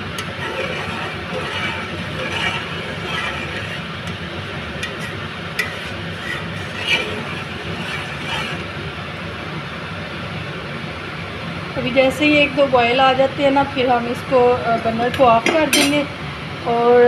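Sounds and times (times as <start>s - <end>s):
steady background hum: 0.0s - 17.0s
ladle clinking against metal pot: 15.4s - 16.0s.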